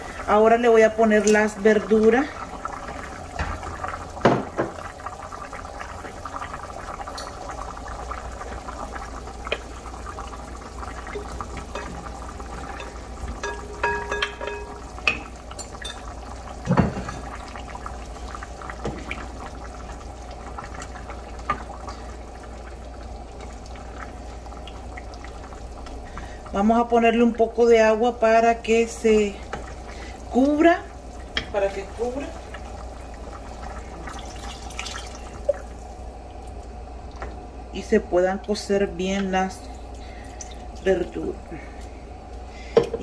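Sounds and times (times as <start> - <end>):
stew bubbling in pot: 0.0 - 43.0
spoon knocking against pot: 12.8 - 16.0.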